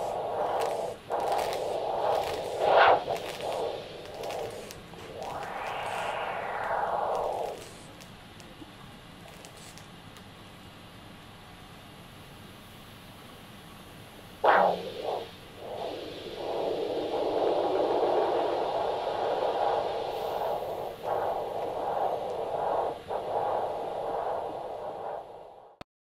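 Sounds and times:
doppler whooshing flow sound: 0:00.0 - 0:08.0, 0:14.4 - 0:25.8
loud crackle: 0:00.0 - 0:08.2, 0:09.2 - 0:09.9.

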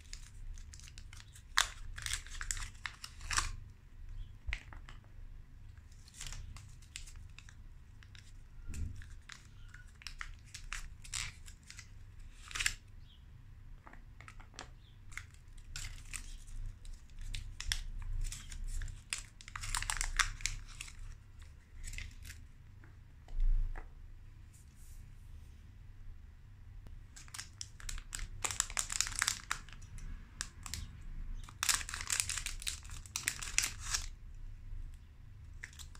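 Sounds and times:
foil wrappers crinkling and tearing: 0:00.0 - 0:03.6, 0:06.0 - 0:12.8, 0:15.1 - 0:21.2, 0:27.2 - 0:34.1, 0:35.6 - 0:35.9.

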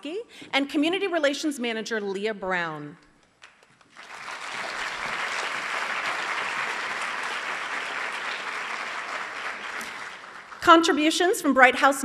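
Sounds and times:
audience applauding: 0:03.4 - 0:10.6.

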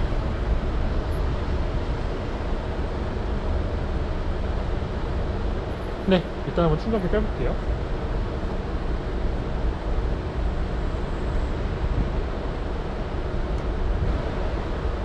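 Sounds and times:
street traffic rumble: 0:00.0 - 0:15.0
wind on microphone: 0:11.3 - 0:15.0.

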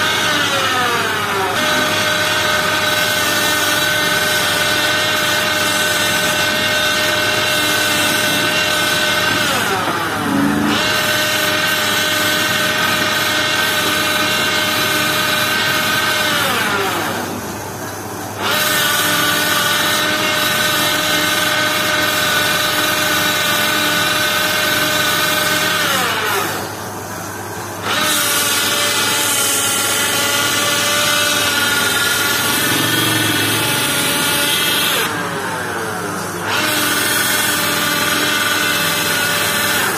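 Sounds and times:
lathe motor whining: 0:00.0 - 0:17.6, 0:27.6 - 0:39.9.

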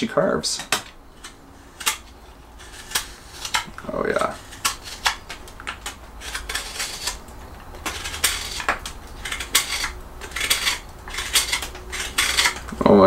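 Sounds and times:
knife scraping cuts on wood: 0:00.6 - 0:12.9.

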